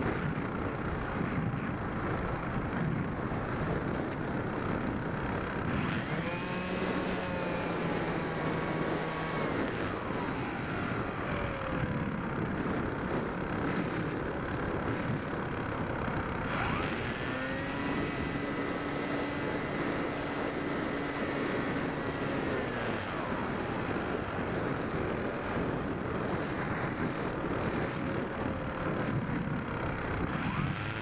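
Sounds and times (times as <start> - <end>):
electric motor and propeller whine: 0.0 - 31.0.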